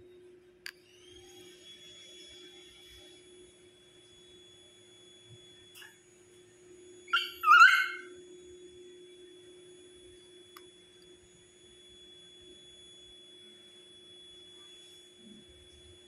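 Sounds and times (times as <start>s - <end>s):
puppy whining: 7.1s - 8.2s.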